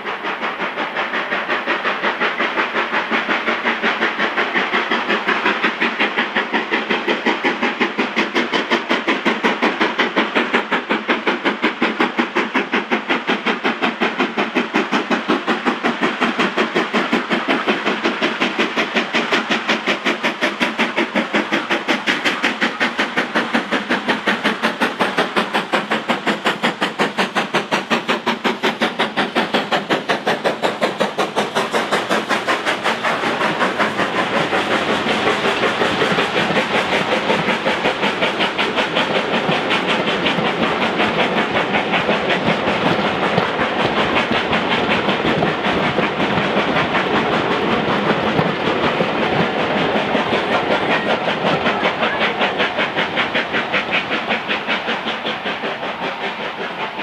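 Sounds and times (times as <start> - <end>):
steam locomotive exhaust beating: 0.0 - 57.0
coaches rumbling and clattering: 33.5 - 54.4.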